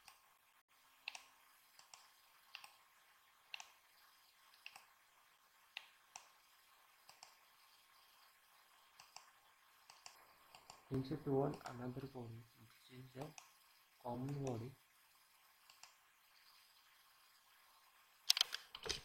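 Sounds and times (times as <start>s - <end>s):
computer mouse clicks: 0.0s - 0.2s, 1.0s - 2.8s, 3.5s - 3.8s, 4.5s - 4.9s, 5.7s - 6.4s, 7.0s - 7.4s, 9.0s - 11.8s, 13.2s - 13.6s, 14.2s - 14.7s, 15.6s - 16.0s, 18.3s - 19.0s
low background hiss: 0.0s - 18.4s.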